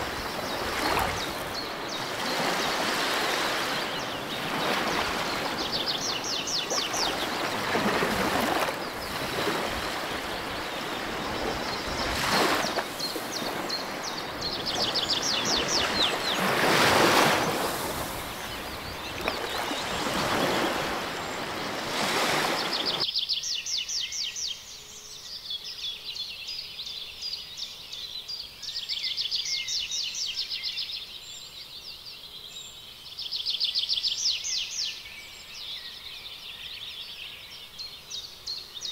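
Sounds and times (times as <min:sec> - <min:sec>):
birds trilling: 0:00.0 - 0:23.0.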